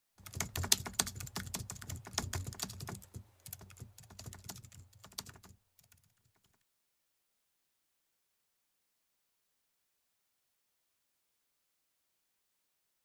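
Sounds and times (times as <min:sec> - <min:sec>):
keyboard typing clicks: 0:00.2 - 0:06.6.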